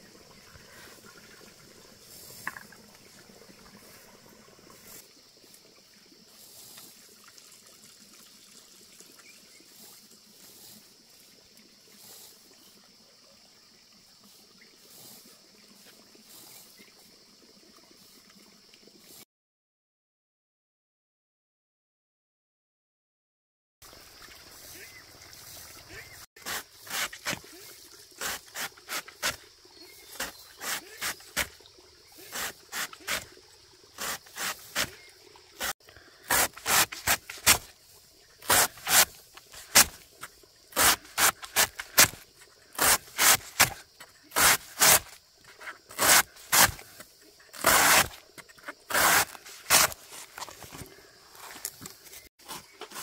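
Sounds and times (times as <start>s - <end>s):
short scraping strokes: 30.1s - 31.5s, 32.2s - 33.3s, 34.0s - 35.0s, 35.6s - 37.7s, 38.4s - 40.0s, 40.7s - 42.2s, 42.8s - 47.0s, 48.9s - 50.6s.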